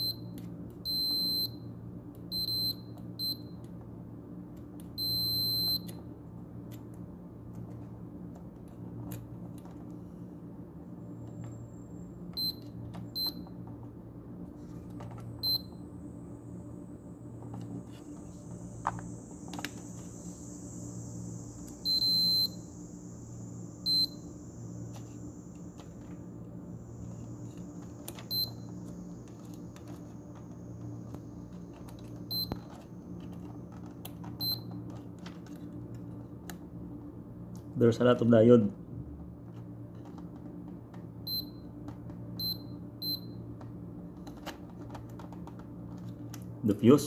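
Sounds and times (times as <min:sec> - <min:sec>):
multimeter high-pitched beeps: 0:00.0 - 0:01.7, 0:02.3 - 0:03.6, 0:05.0 - 0:06.0, 0:12.4 - 0:13.4, 0:15.4 - 0:15.8, 0:21.8 - 0:22.7, 0:23.8 - 0:24.3, 0:28.3 - 0:28.7, 0:32.3 - 0:32.6, 0:34.4 - 0:34.7, 0:41.3 - 0:41.6, 0:42.4 - 0:43.4
low hum: 0:00.0 - 0:46.7.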